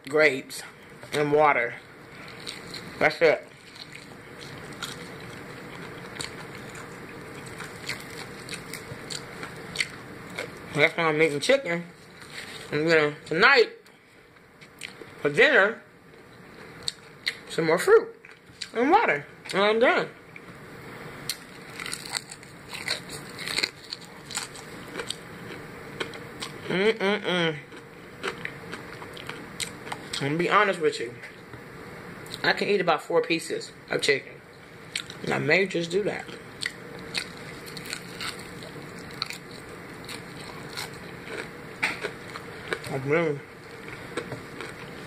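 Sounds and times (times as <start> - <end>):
chewing: 2.2 - 2.9, 3.5 - 10.6, 21.3 - 26.7, 27.7 - 30.2, 34.9 - 35.3, 36.3 - 43.0, 43.6 - 45.0.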